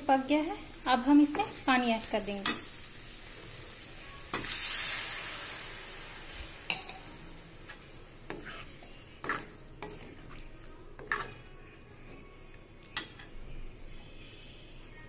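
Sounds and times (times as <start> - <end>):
water sizzling in hot pan: 0.0 - 8.8.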